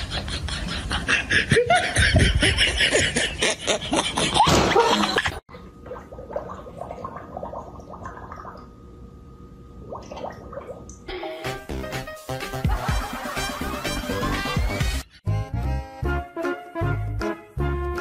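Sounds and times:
loud laughter: 0.0s - 5.4s, 12.6s - 14.8s.

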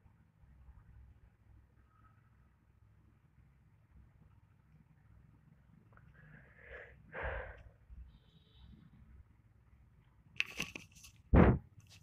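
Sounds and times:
person sniffing: 6.3s - 7.7s.

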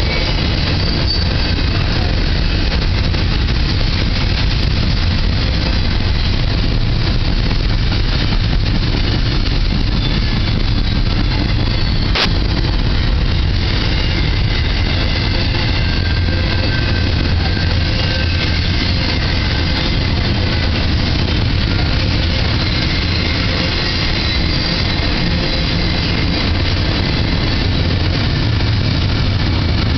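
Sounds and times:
freight train wheels rumbling: 0.0s - 29.9s
sharp click: 12.1s - 12.4s.

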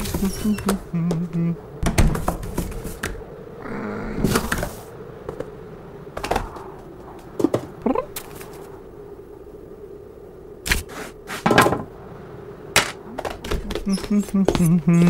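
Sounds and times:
rising squeaky vocal sounds: 0.0s - 1.7s, 13.6s - 15.0s
low grunt: 3.6s - 4.5s.

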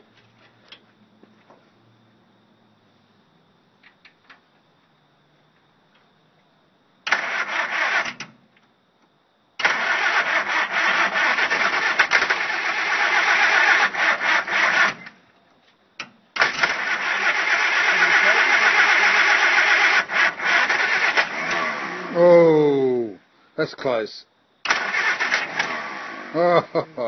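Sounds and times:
starter cranking engine: 7.1s - 8.2s, 9.6s - 15.1s, 16.4s - 22.1s, 24.7s - 26.4s.

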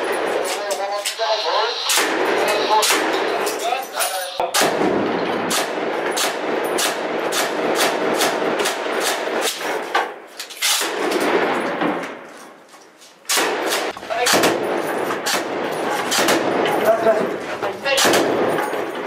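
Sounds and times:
machine gun firing: 4.5s - 9.5s, 13.3s - 16.9s, 17.9s - 19.0s.

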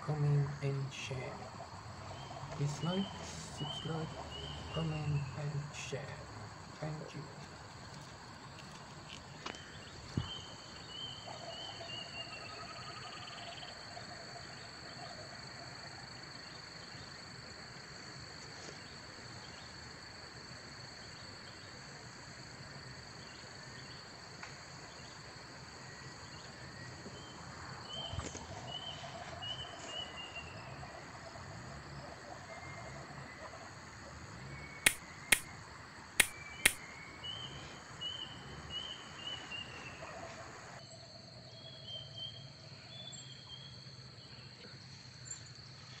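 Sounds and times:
high insect trill: 0.0s - 46.0s
sharp clicks: 34.8s - 35.5s, 36.2s - 36.8s.

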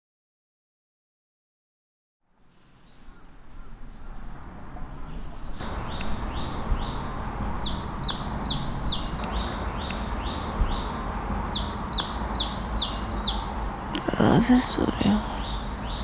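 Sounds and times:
low background noise: 2.2s - 16.0s
songbird singing high notes: 5.6s - 16.0s.

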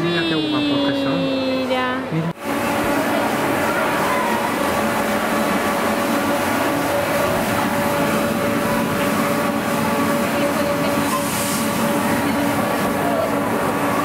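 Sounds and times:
machinery humming: 0.0s - 14.0s
steady machine tones: 0.0s - 14.0s.

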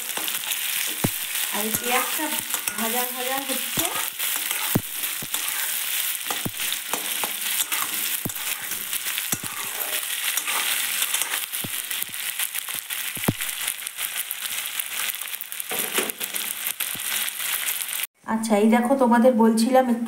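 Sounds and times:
metal spatula scraping pan: 0.0s - 12.0s
onions sizzling in oil: 0.0s - 18.1s.

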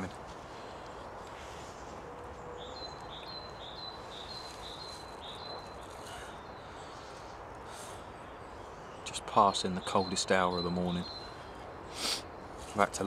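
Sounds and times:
steady hiss: 11.9s - 13.0s.

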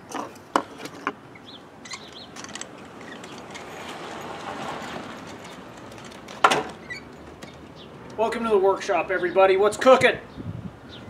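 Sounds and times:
vehicle passing: 2.1s - 8.9s.

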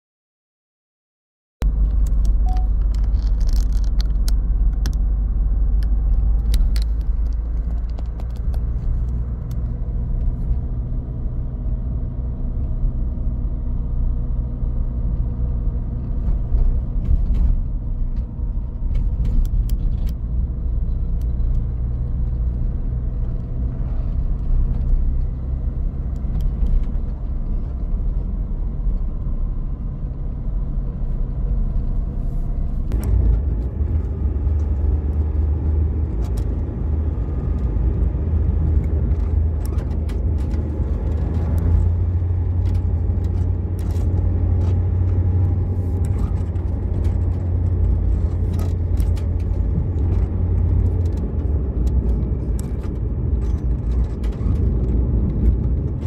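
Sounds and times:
vehicle road and engine rumble: 1.6s - 56.0s
small clicks and rattles: 1.8s - 5.1s, 5.8s - 10.3s, 38.7s - 56.0s.

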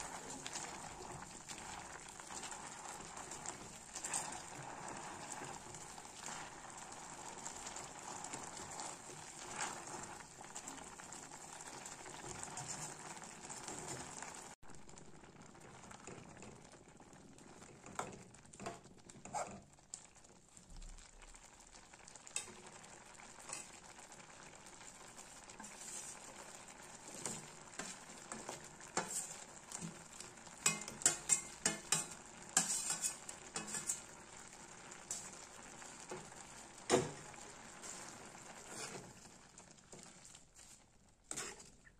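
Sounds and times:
vegetables sizzling in oil: 0.0s - 41.9s
spatula tapping pan: 30.6s - 34.1s.

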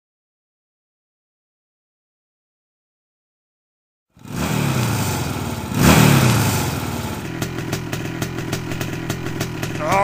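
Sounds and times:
engine starting and revving: 4.2s - 10.0s.

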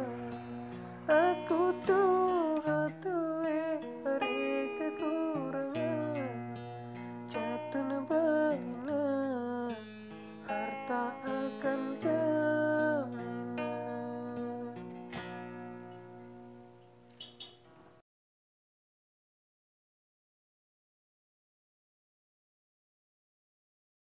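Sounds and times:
person singing: 0.0s - 9.8s, 10.4s - 14.9s
acoustic guitar strumming: 0.0s - 18.0s.

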